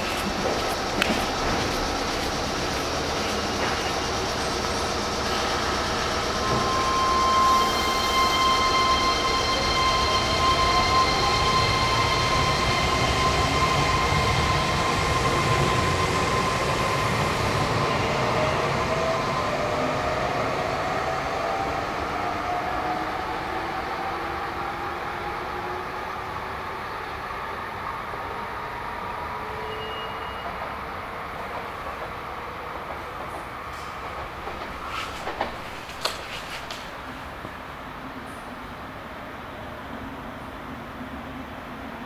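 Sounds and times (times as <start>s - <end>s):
wheels rumbling on rail: 0.0s - 21.6s, 30.2s - 42.0s.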